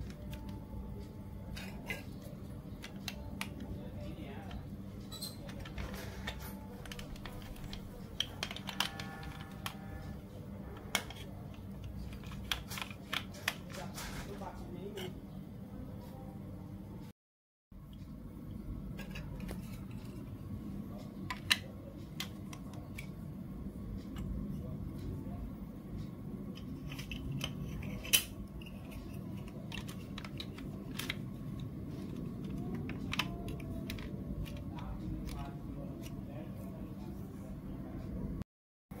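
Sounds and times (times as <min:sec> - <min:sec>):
plastic pieces clicking together: 0:05.5 - 0:09.9, 0:10.9 - 0:13.7, 0:26.6 - 0:35.4.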